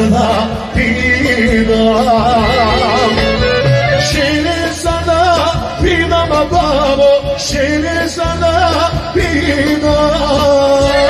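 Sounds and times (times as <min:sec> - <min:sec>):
violin: 0:00.0 - 0:08.3
accordion: 0:00.0 - 0:11.0
drum kit: 0:00.0 - 0:11.0
man singing: 0:00.0 - 0:11.0.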